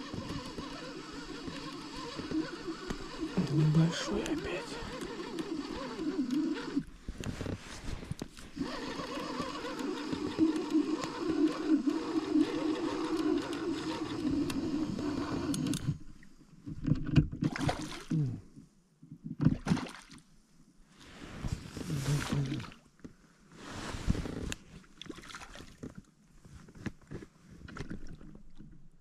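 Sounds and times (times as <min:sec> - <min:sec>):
boat motor running: 0:00.0 - 0:06.9, 0:08.5 - 0:16.0.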